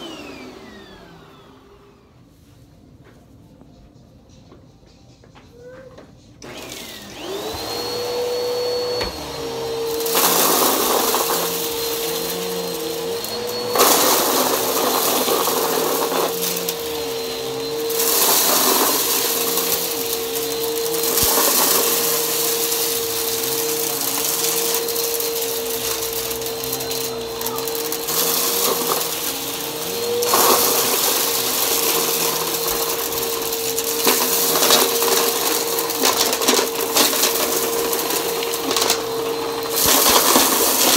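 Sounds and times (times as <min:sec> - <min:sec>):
vacuum airflow rushing over carpet: 0:00.0 - 0:02.3, 0:06.4 - 0:40.9
vacuum cleaner motor whine: 0:00.0 - 0:02.3, 0:06.4 - 0:40.9.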